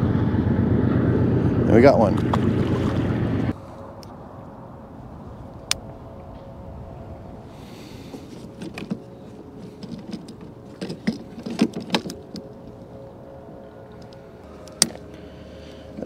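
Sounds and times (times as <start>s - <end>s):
boat motor humming: 0.0s - 16.0s
fishing gear knocking and clattering: 8.2s - 12.8s.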